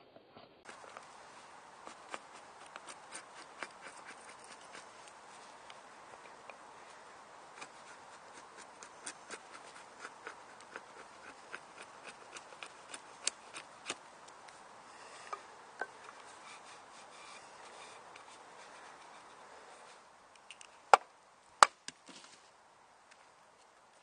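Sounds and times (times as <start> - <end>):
faint steady hiss: 0.0 - 24.0
knife carving wooden stick: 0.6 - 6.6, 7.5 - 20.7.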